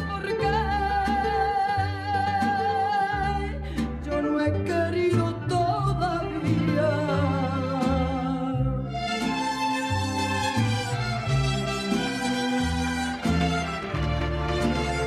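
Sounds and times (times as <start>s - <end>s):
woman singing: 0.0s - 8.9s
bass: 0.0s - 15.0s
guitar: 0.0s - 15.0s.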